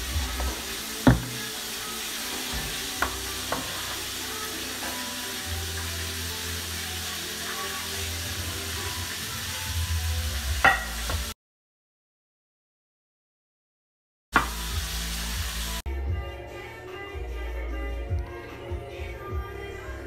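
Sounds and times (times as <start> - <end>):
food sizzling in oil: 0.0 - 11.4, 14.4 - 15.8.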